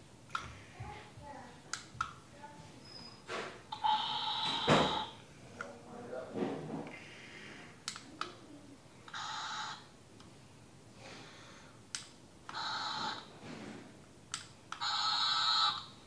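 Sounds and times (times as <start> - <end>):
toy robot buzzy electronic noises: 3.8 - 5.2, 12.5 - 13.3, 14.8 - 15.9.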